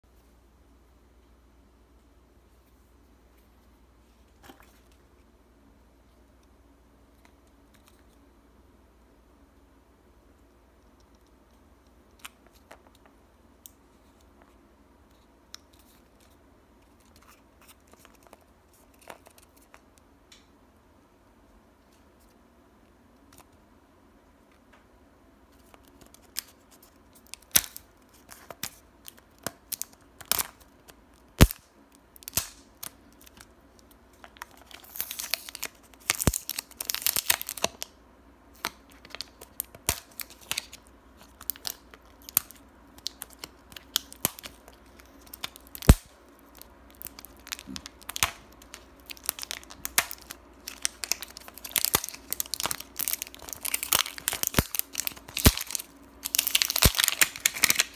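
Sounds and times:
paper wrapper crinkling and tearing: 0:25.6 - 0:31.6, 0:32.2 - 0:37.9, 0:38.5 - 0:57.9.

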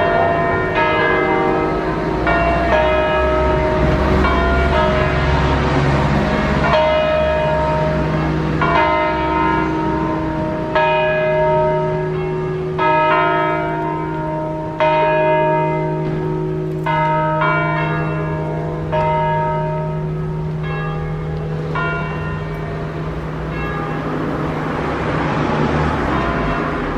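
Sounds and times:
church bells ringing: 0:00.0 - 0:26.9.

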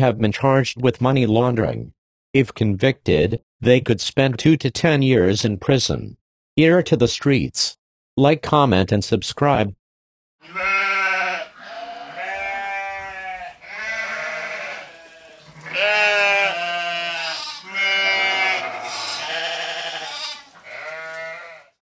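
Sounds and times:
animal bleating: 0:10.4 - 0:21.8.

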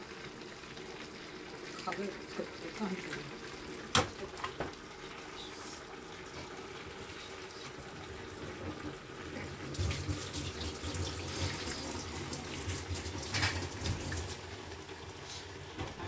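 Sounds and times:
tap water running into sink: 0:08.4 - 0:14.4.

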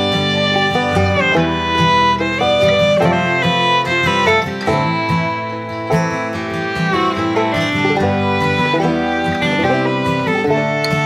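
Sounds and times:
fiddle sliding notes: 0:00.0 - 0:11.0
light guitar accompaniment: 0:00.0 - 0:11.0.

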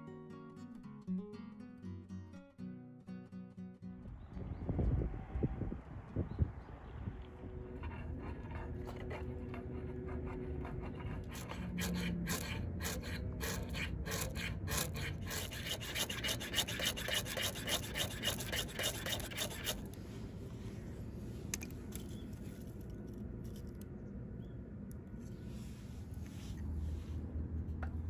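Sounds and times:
fire-starter rod scraped with striker: 0:07.8 - 0:20.0.

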